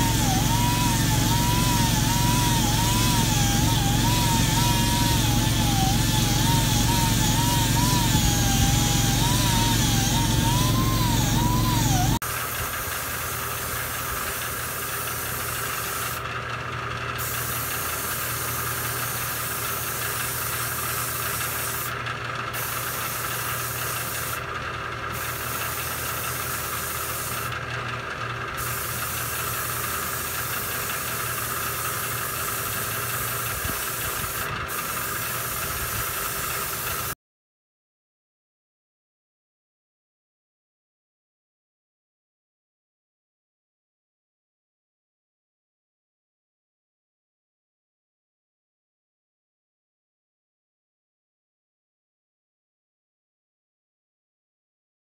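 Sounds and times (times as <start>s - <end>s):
air tool whine: 0.0s - 16.3s, 17.2s - 24.5s, 25.1s - 27.6s, 28.5s - 37.2s
steady mechanical hum: 0.0s - 37.2s
air hiss: 32.2s - 37.1s.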